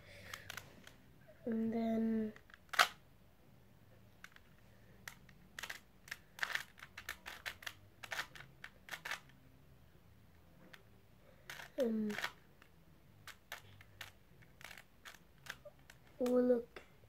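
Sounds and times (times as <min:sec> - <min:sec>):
puzzle cube clicking turns: 0:00.2 - 0:01.0, 0:02.3 - 0:03.0, 0:04.1 - 0:09.5, 0:10.3 - 0:16.6.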